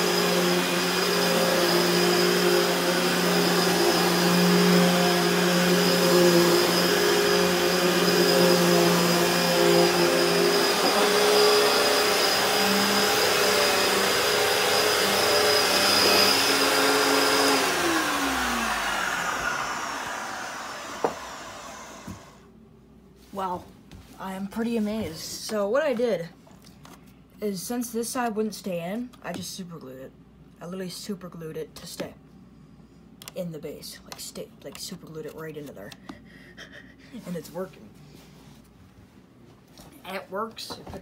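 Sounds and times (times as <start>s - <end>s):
upright vacuum cleaner running: 0.0s - 22.5s.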